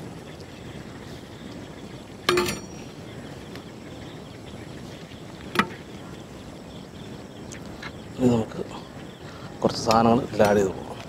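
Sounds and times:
steady background hiss: 0:00.0 - 0:11.0
metal skimmer clinking on pots: 0:02.3 - 0:02.9.

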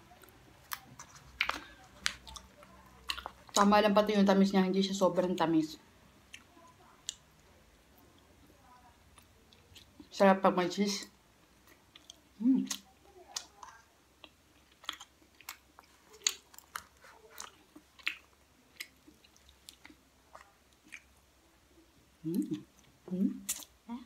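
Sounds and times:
wet chewing with clicks and smacks: 0:00.1 - 0:03.8, 0:09.0 - 0:10.2, 0:11.4 - 0:21.4.

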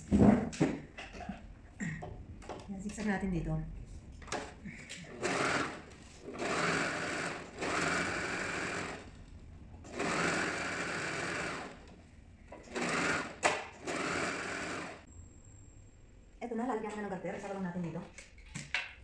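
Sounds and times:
serger stitching fabric: 0:05.1 - 0:09.2, 0:09.9 - 0:11.8, 0:12.6 - 0:15.0.

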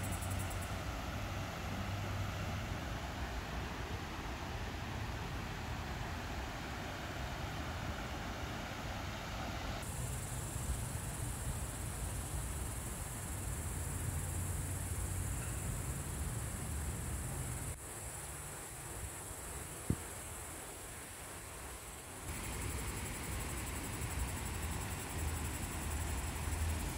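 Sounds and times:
high-pitched insect chorus: 0:00.0 - 0:01.2, 0:09.8 - 0:26.9.

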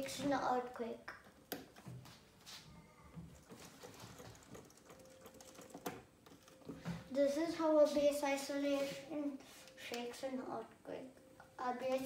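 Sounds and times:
shake table clicking and rattling: 0:03.2 - 0:06.8.

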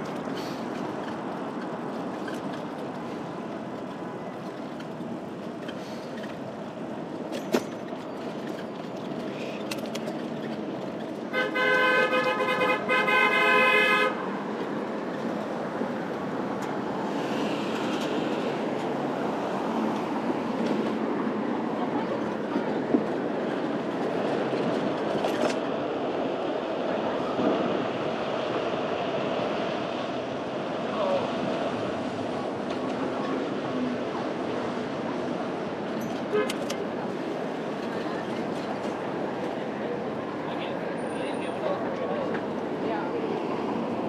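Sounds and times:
traffic noise: 0:00.0 - 0:44.0
vehicle horn blaring: 0:11.3 - 0:14.2, 0:36.3 - 0:36.7.

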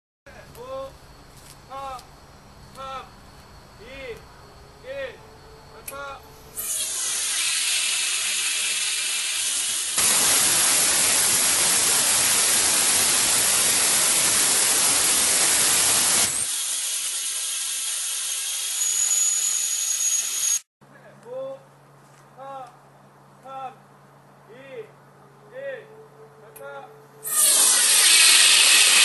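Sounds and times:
high gas hiss: 0:05.9 - 0:20.6, 0:27.2 - 0:29.0.

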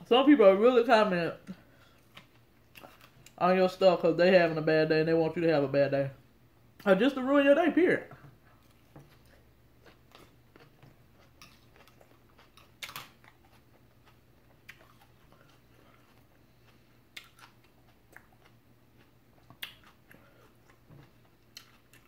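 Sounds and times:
person chewing and lip smacking: 0:01.5 - 0:03.4, 0:08.4 - 0:22.0.

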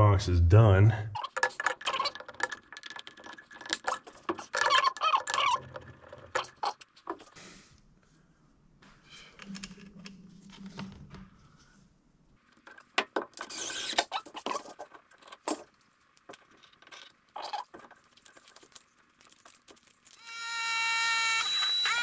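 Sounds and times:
hands working metal cable: 0:01.2 - 0:07.3.

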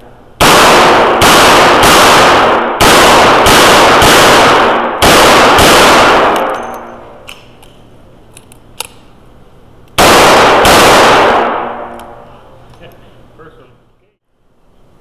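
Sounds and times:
revolver shots echoing: 0:00.4 - 0:07.6, 0:10.0 - 0:12.2.

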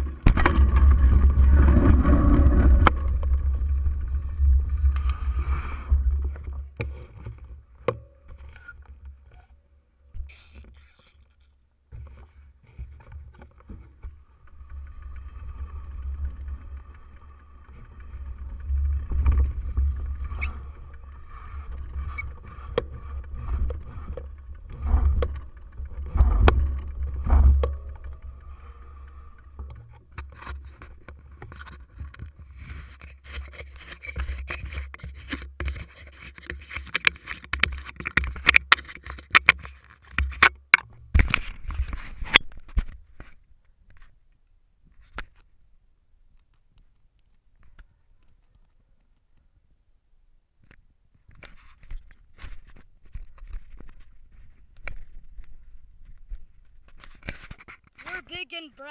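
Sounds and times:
wind and vibration rumble: 0:00.0 - 0:44.2, 0:51.3 - 0:58.5
bicycle knocking and rattling: 0:13.0 - 0:43.3.

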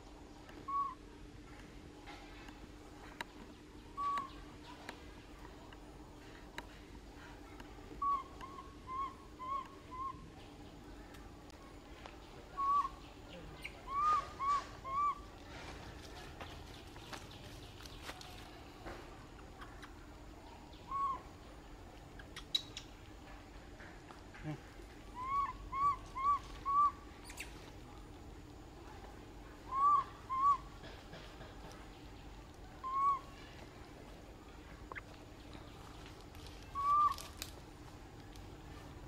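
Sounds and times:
baby monkey coo calls: 0:00.6 - 0:01.0, 0:04.0 - 0:04.4, 0:08.0 - 0:10.3, 0:12.6 - 0:15.3, 0:20.8 - 0:21.4, 0:24.4 - 0:27.6, 0:29.6 - 0:31.1, 0:32.8 - 0:33.4, 0:36.3 - 0:37.5.

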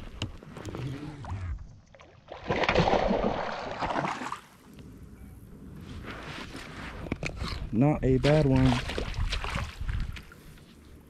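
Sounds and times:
fish thrashing and splashing: 0:02.1 - 0:04.5, 0:08.4 - 0:10.2.

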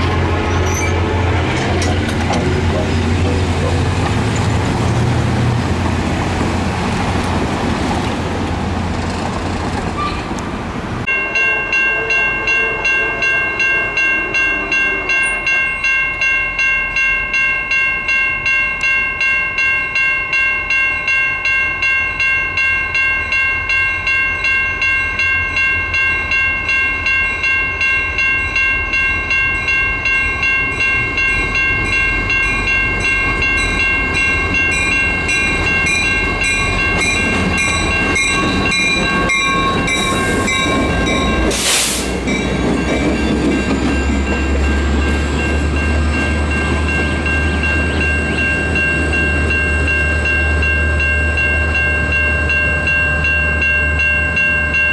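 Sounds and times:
crossing bell ringing: 0:00.0 - 0:06.1, 0:11.0 - 0:54.9
locomotive engine low rumble: 0:00.0 - 0:11.1
diesel locomotive rumbling past: 0:00.0 - 0:18.2, 0:23.3 - 0:54.9.

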